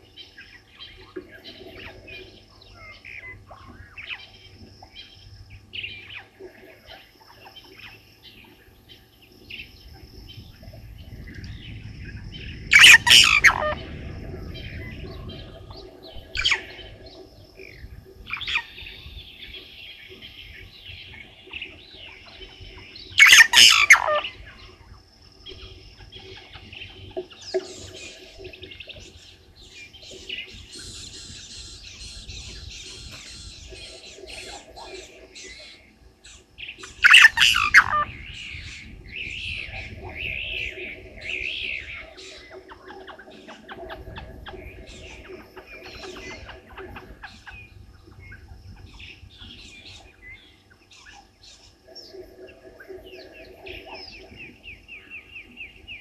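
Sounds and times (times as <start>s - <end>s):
birds chirping and twittering: 0.0s - 56.0s
loud harsh bird calls: 12.5s - 20.3s, 21.6s - 24.8s, 30.3s - 51.8s.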